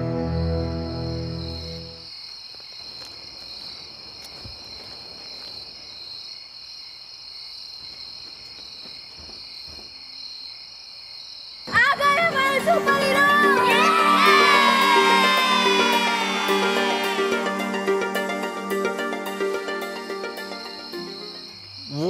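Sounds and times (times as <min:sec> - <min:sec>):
background music: 0:00.0 - 0:02.0, 0:11.7 - 0:21.7
crickets chirring: 0:00.0 - 0:11.7, 0:14.4 - 0:22.0
children shouting: 0:11.9 - 0:18.6.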